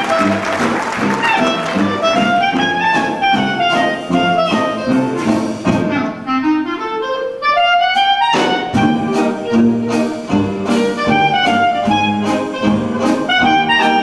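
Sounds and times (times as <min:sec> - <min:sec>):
clarinet solo: 0:00.0 - 0:14.0
dixieland jazz band: 0:00.0 - 0:14.0.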